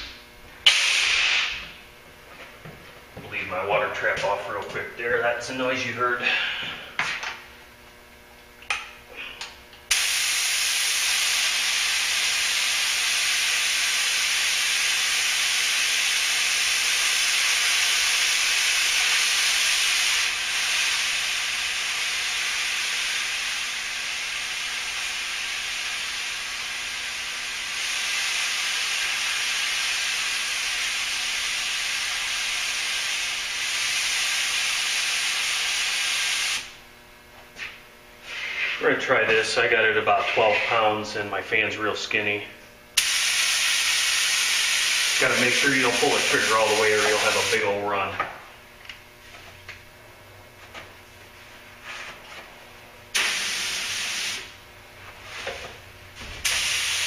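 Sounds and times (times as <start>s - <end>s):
compressed air hissing from spray gun: 0.6s - 1.8s, 9.9s - 36.7s, 43.0s - 47.6s, 53.1s - 54.6s, 56.4s - 57.0s.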